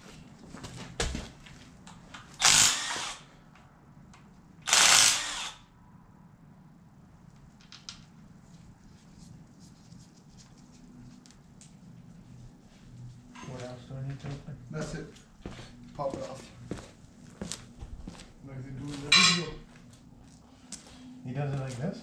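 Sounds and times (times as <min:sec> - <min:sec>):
power tool bursts: 0:02.4 - 0:03.3, 0:04.6 - 0:05.7.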